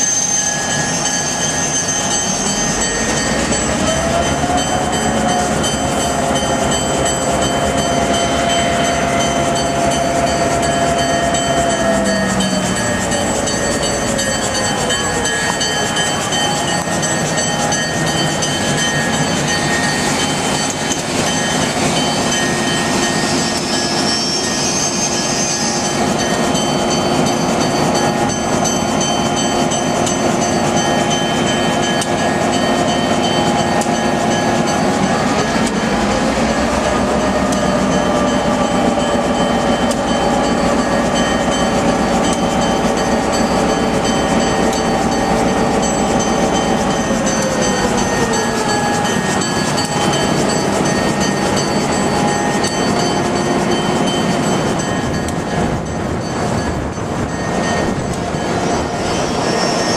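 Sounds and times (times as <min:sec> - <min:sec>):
diesel locomotive engine drone: 0:00.0 - 0:59.9
train wheels on rails: 0:00.0 - 0:59.9.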